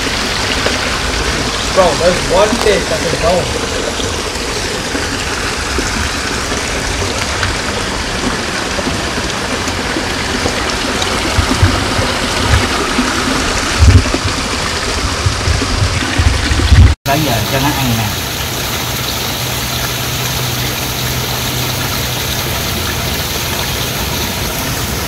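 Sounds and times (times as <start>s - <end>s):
waterfall splashing over rocks: 0.0s - 25.0s
low thumps: 11.2s - 17.0s.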